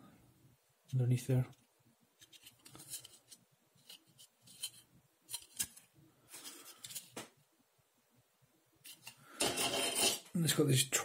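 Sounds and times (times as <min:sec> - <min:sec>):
plastic parts clicking and scraping: 0:01.5 - 0:07.2, 0:08.8 - 0:10.2.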